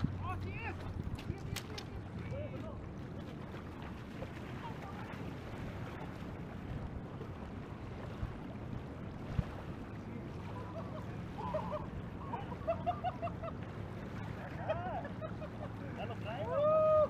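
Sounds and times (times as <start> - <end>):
wind on microphone: 0.0 - 12.6
river water: 0.0 - 17.0.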